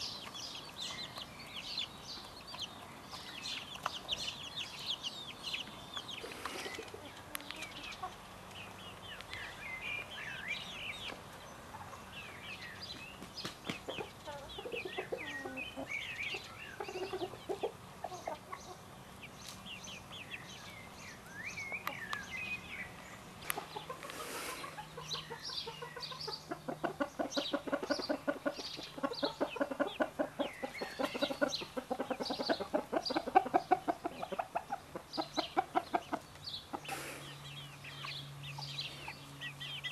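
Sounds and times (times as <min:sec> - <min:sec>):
chicks peeping: 0:00.0 - 0:39.9
low clucks: 0:23.4 - 0:37.3.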